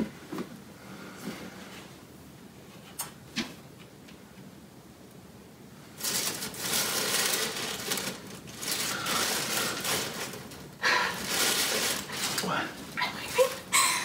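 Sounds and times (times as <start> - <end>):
tissue paper rustling: 6.0 - 13.9.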